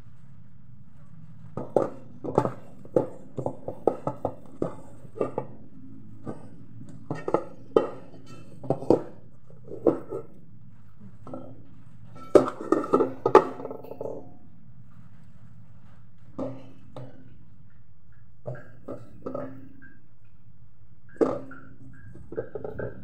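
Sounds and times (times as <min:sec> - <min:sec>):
steady low hum: 0:00.0 - 0:23.0
knocks and clinks against metal pot: 0:01.6 - 0:10.4, 0:11.2 - 0:14.5, 0:16.4 - 0:20.2, 0:21.1 - 0:23.0.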